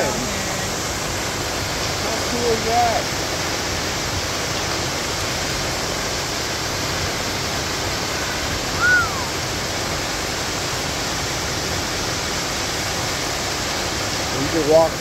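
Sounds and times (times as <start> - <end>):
waterfall rushing into pool: 0.0 - 15.0
short rising and falling call: 8.8 - 9.4.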